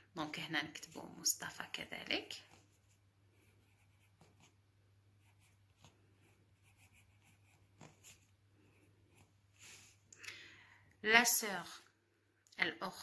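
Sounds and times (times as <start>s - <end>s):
pencil scratching on paper: 2.4s - 4.6s, 5.2s - 9.4s.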